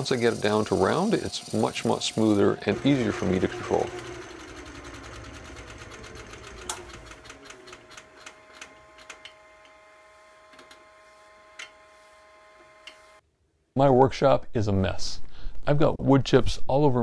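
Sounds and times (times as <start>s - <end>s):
rapid ticking: 0.0s - 9.2s
wood lathe spinning down: 0.0s - 13.2s.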